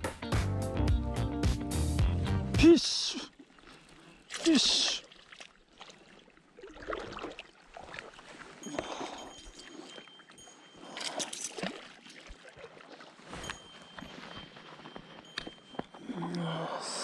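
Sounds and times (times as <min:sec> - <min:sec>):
fish splashing in water: 0:03.4 - 0:10.0.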